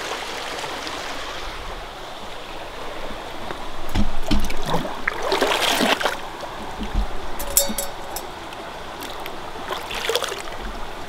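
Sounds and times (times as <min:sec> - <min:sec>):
creek flowing: 0:00.0 - 0:11.0
metal pot knocking and splashing: 0:03.9 - 0:04.7, 0:06.9 - 0:08.3.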